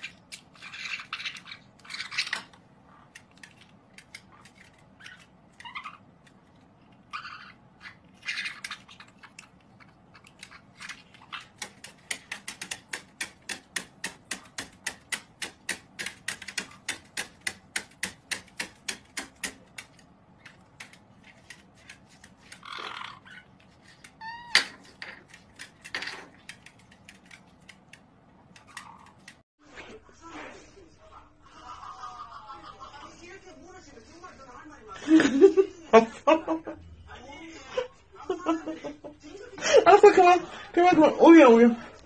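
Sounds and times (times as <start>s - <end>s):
birds hopping on plastic tabletop: 0.0s - 29.4s
parrot squawks: 5.0s - 6.1s, 7.0s - 9.4s, 22.6s - 23.6s.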